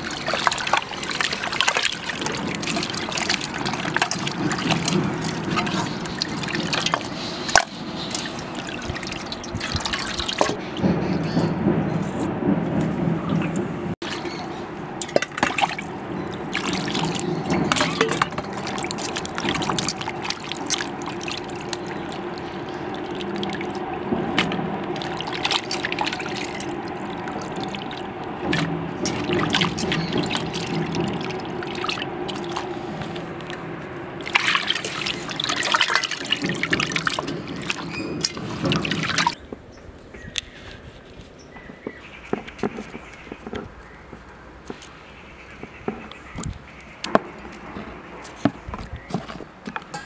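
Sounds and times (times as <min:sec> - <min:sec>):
meat splashing in water bowl: 0:00.0 - 0:10.6, 0:14.0 - 0:39.4.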